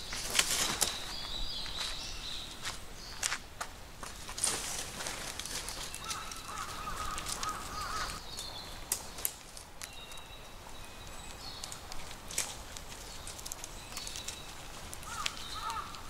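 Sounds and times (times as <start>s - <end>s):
tent hooks clicking onto poles: 5.2s - 8.2s, 11.5s - 16.0s.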